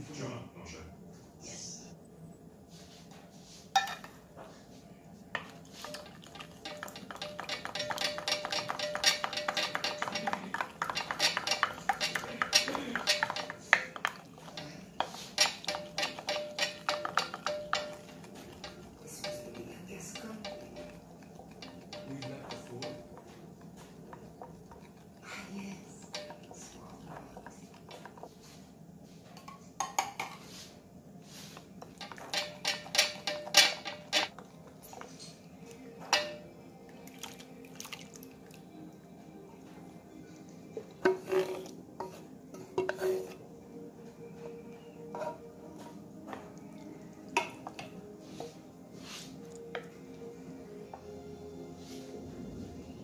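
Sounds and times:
quiet background music: 0.0 - 53.0
spoon scraping glass bowl: 5.6 - 24.5, 41.0 - 43.4, 45.0 - 46.0.

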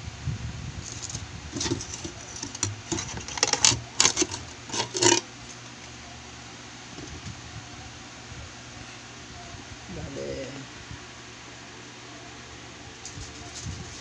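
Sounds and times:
hands handling glass terrarium: 0.8 - 6.0.

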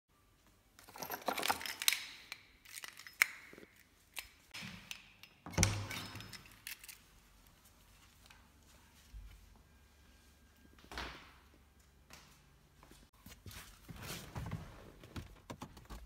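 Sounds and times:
small objects clicking and rattling: 0.8 - 4.6.

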